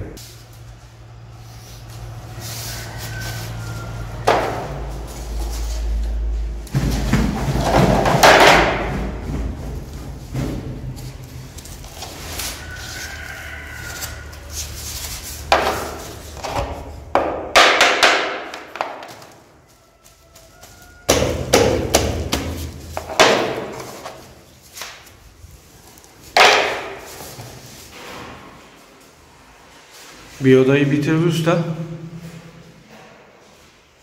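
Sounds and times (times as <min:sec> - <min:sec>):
hammer knocking wooden planks: 0:04.2 - 0:04.7, 0:06.8 - 0:10.6, 0:15.5 - 0:19.4, 0:21.1 - 0:24.2, 0:26.4 - 0:27.2.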